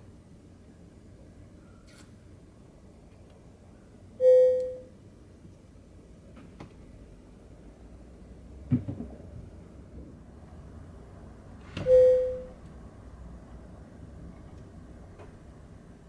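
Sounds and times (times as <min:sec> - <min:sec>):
bell-like ding: 0:04.2 - 0:04.8, 0:11.9 - 0:12.5.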